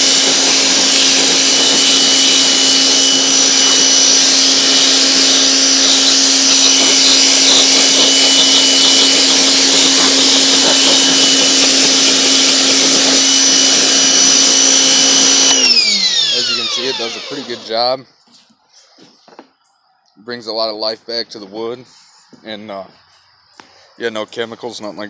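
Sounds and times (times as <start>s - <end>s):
water jet hissing on wood: 0.0s - 15.8s
pressure washer motor whining: 0.0s - 18.0s.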